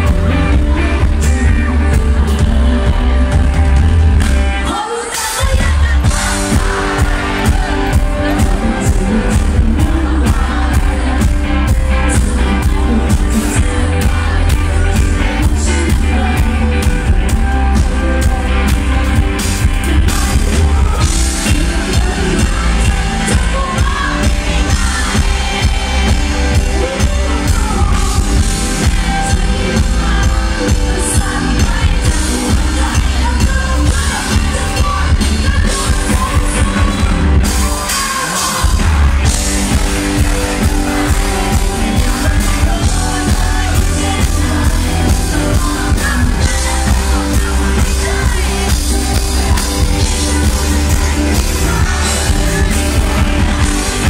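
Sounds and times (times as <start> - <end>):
live pop-rock band playing: 0.0 - 54.0
person singing into a microphone: 0.0 - 54.0.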